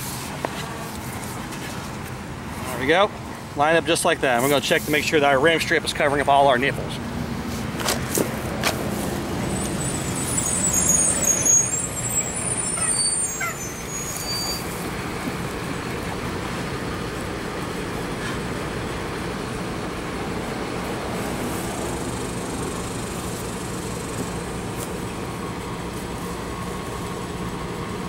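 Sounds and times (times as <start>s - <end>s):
road traffic noise: 0.0s - 28.0s
high brake squeal: 9.5s - 14.9s
heavy vehicle passing: 14.6s - 26.0s.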